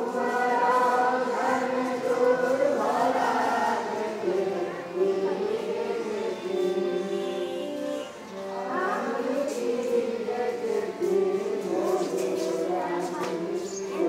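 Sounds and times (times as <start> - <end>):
boys singing in unison: 0.0 - 14.0.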